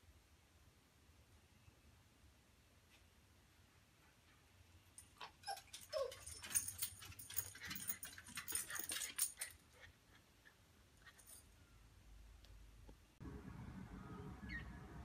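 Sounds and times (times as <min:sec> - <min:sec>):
dog whimpering: 0:05.2 - 0:06.7.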